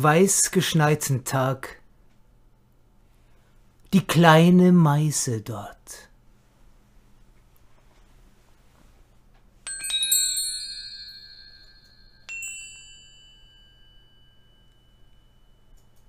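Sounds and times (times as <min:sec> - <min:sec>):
metal chimes ringing: 0:09.6 - 0:16.0.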